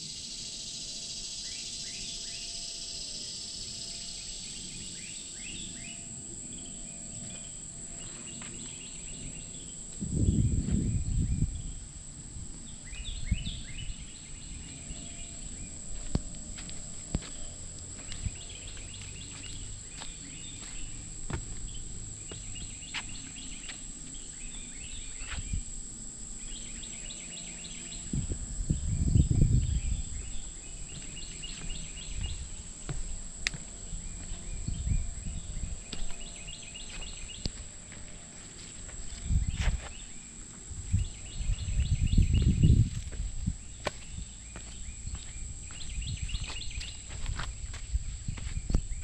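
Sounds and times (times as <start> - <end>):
high insect drone: 0.0 - 49.0
footsteps on dirt and boardwalk: 7.2 - 10.9, 14.6 - 25.6, 30.1 - 49.0
bird singing repeated notes: 26.4 - 38.3.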